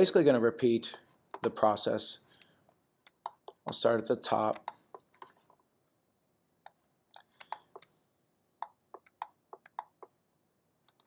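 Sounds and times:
mouse and keyboard clicking: 4.5 - 5.6, 6.6 - 7.9, 8.6 - 10.1.

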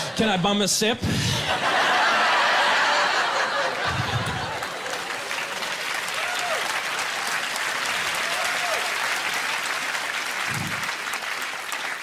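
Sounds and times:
audience laughing: 1.0 - 5.7
audience applauding: 1.7 - 12.0.

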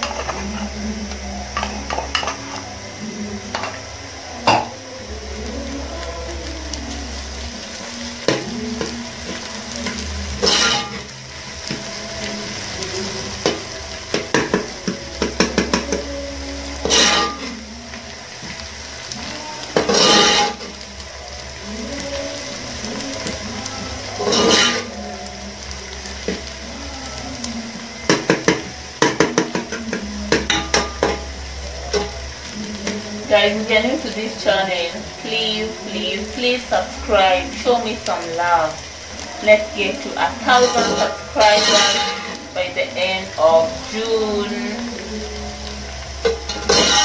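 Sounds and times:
onions sizzling in pot: 0.0 - 47.0
metal spoon scraping pot: 16.8 - 17.5, 19.8 - 20.7, 24.2 - 24.9, 40.5 - 42.4.

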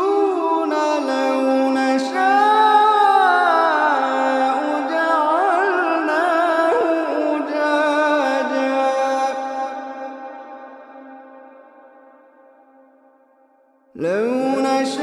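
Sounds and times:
person reciting in melodic chant: 0.0 - 11.6, 14.0 - 15.0.

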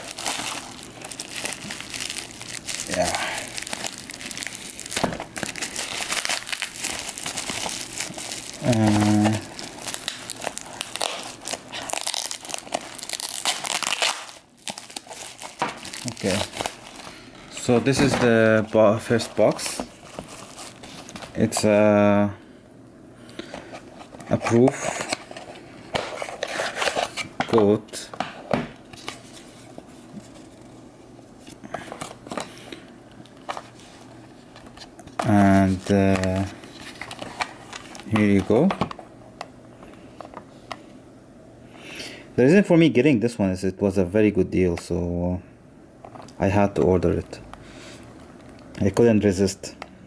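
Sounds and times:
bubble wrap crinkling: 0.0 - 21.5, 33.3 - 38.7.

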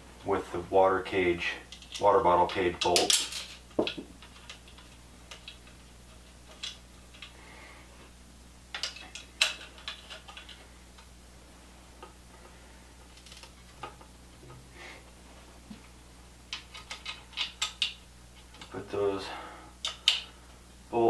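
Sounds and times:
faint low hum: 0.0 - 21.0
small metal parts clicking: 2.8 - 7.3, 8.7 - 10.6, 13.1 - 13.9, 16.5 - 18.7.

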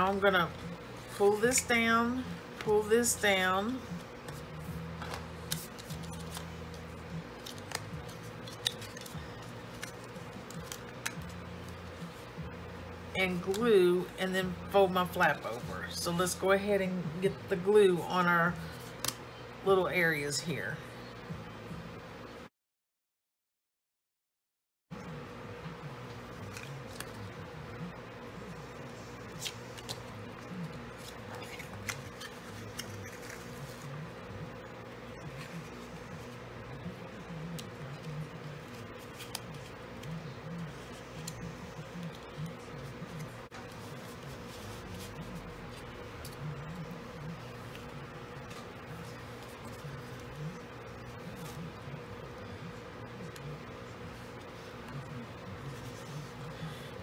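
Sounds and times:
steady low hum: 0.0 - 22.5, 24.9 - 57.0
cardstock being folded: 4.2 - 12.3, 26.1 - 27.4, 28.8 - 34.0, 35.2 - 51.8
paper rustling and crinkling: 5.0 - 12.2, 28.9 - 34.0, 37.4 - 50.6.

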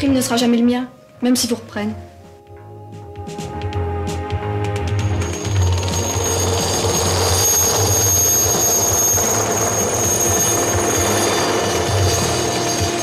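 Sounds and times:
helicopter flying low: 4.8 - 13.0.

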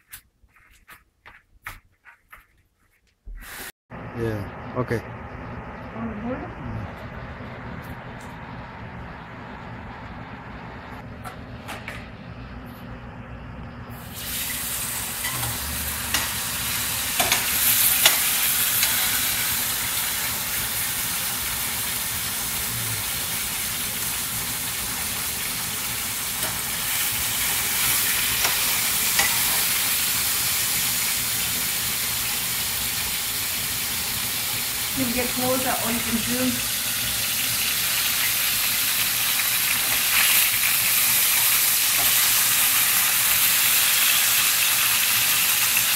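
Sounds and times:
fish sizzling in oil: 13.9 - 45.9
utensils clicking against pan: 15.2 - 16.4, 17.2 - 19.2, 28.3 - 29.7.

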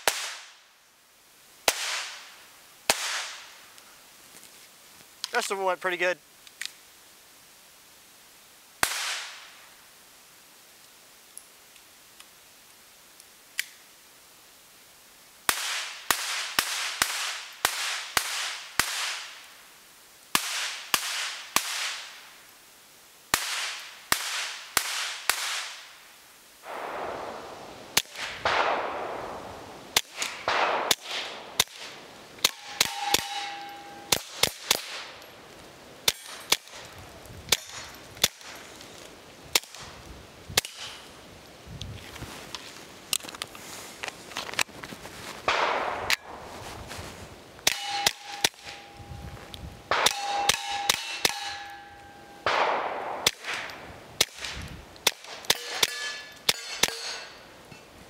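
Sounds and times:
pistol shots: 2.9 - 3.4, 26.7 - 29.4, 30.0 - 35.1, 45.5 - 46.4, 49.9 - 51.8, 52.4 - 57.3.

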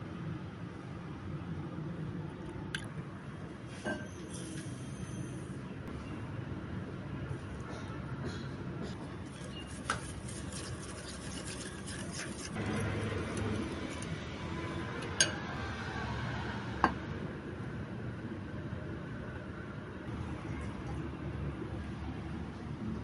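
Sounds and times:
wire whisk scraping glass bowl: 9.3 - 14.2.

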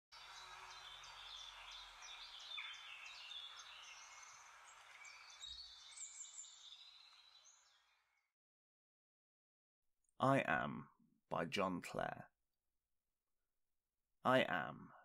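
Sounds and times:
steady outdoor hiss: 0.2 - 7.6
birds chirping: 0.2 - 8.2.

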